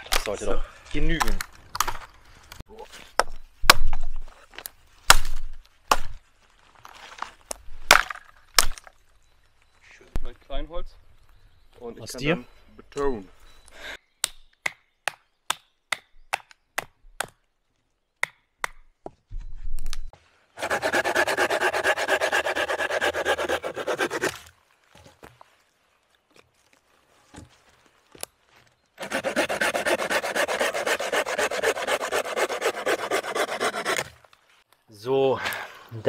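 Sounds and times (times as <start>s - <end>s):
hand saw sawing wood: 20.6s - 24.4s, 29.0s - 34.1s.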